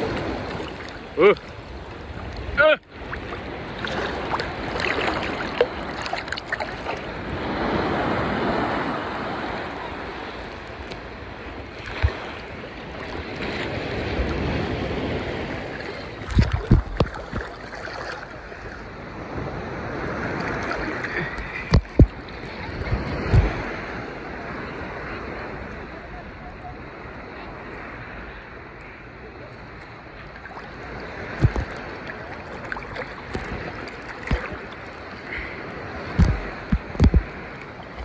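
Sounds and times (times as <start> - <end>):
ocean surf rushing: 0.0 - 25.6, 30.0 - 38.0
low thumps on microphone: 36.1 - 37.5.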